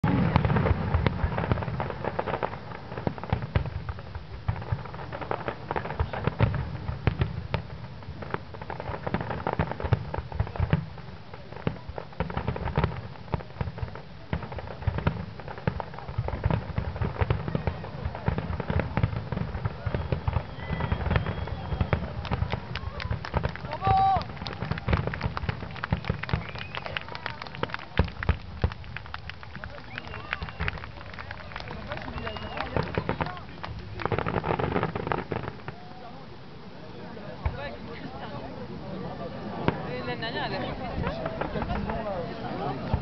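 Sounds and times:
fireworks bangs and crackles: 0.0s - 43.0s.

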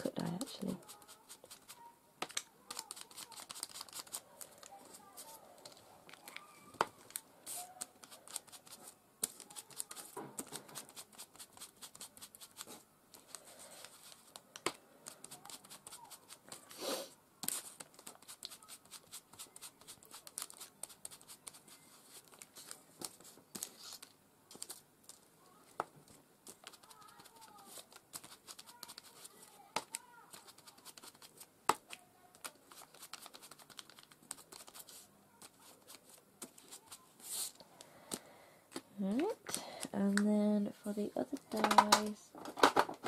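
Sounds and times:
light scratchy taps on paper: 25.8s - 37.0s
scrape on cardstock: 36.7s - 37.6s.

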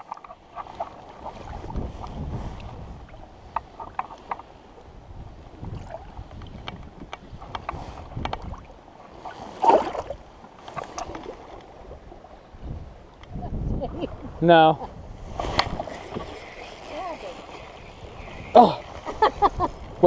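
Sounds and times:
water lapping against boat hull: 0.0s - 20.0s
wind rumbling on microphone: 0.0s - 20.0s
fish splashing: 15.2s - 20.0s.

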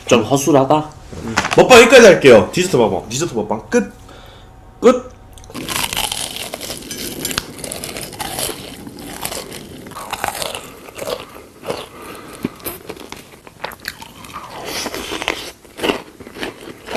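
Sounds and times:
chewing crunchy food: 5.4s - 16.9s.

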